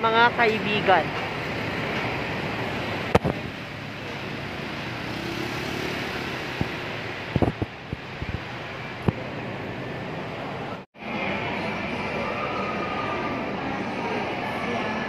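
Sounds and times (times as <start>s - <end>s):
steady traffic noise: 0.0s - 15.0s
van engine hum: 0.9s - 10.8s
motor scooter passing: 1.4s - 10.8s.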